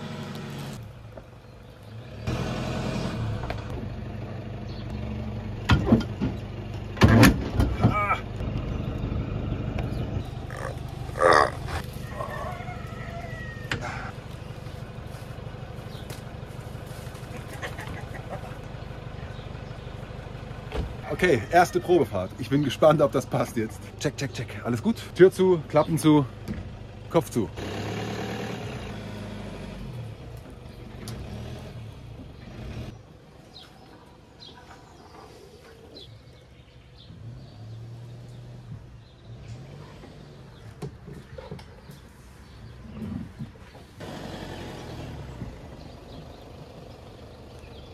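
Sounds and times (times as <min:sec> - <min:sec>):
birds chirping: 0:00.0 - 0:02.4, 0:03.0 - 0:06.9, 0:07.8 - 0:27.6, 0:30.0 - 0:47.9
truck engine idling: 0:00.0 - 0:29.1, 0:43.4 - 0:47.9.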